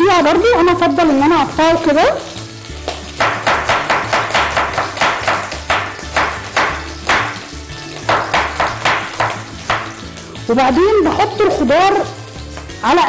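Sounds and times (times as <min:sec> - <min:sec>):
background music with bass: 0:00.0 - 0:13.0
knife chopping on wooden board: 0:02.9 - 0:10.0.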